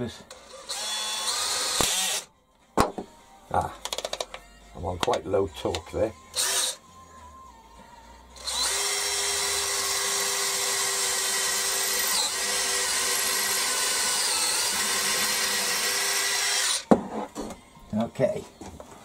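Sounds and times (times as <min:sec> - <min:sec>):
cordless drill drilling metal: 0:00.3 - 0:02.3, 0:06.3 - 0:06.8, 0:08.4 - 0:16.9.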